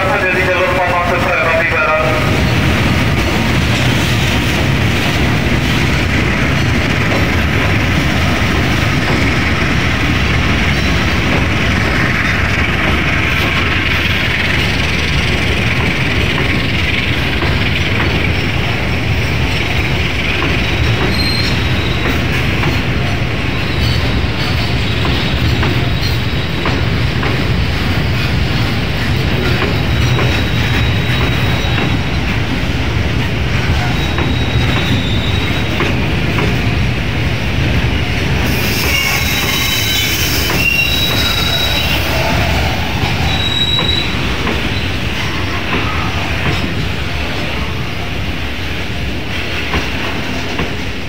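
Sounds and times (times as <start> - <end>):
freight train wheels clattering on rails: 0.0 - 51.0.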